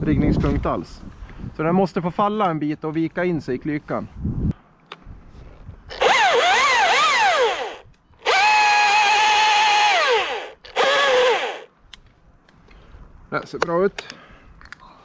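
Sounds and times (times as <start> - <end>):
chainsaw cutting: 5.9 - 11.7.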